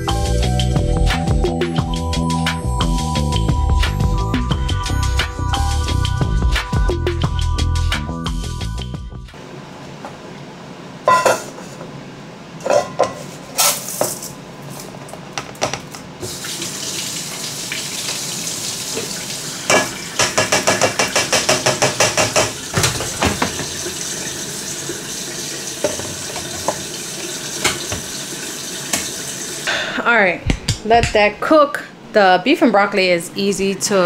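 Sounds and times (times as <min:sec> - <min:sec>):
dishes knocking and clinking: 0:11.1 - 0:11.6, 0:12.6 - 0:13.2, 0:15.4 - 0:15.9, 0:19.7 - 0:23.8, 0:25.8 - 0:26.8, 0:27.6 - 0:28.1
tap running into sink: 0:18.9 - 0:24.0, 0:25.8 - 0:27.0, 0:27.6 - 0:28.2, 0:28.9 - 0:29.2.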